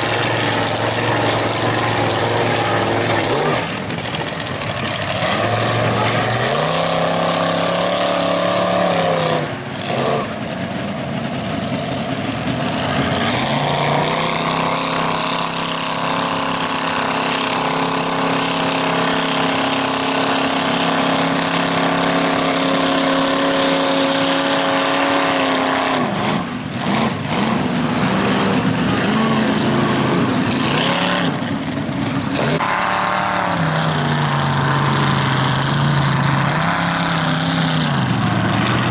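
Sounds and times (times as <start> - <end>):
mud and water spraying: 0.0 - 10.4, 12.6 - 31.4
truck engine revving hard: 0.0 - 38.9.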